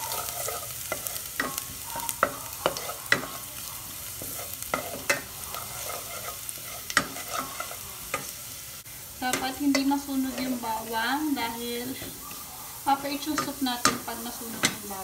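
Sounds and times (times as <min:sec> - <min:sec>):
spatula scraping a pot: 0:00.0 - 0:03.5, 0:04.2 - 0:08.4, 0:09.3 - 0:10.9
garlic sizzling in oil: 0:00.0 - 0:15.0.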